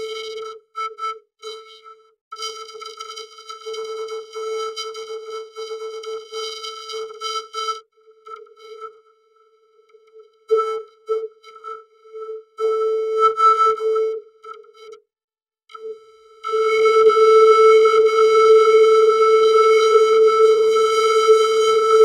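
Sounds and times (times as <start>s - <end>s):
vocoded synthesizer tone: 16.4s - 22.0s.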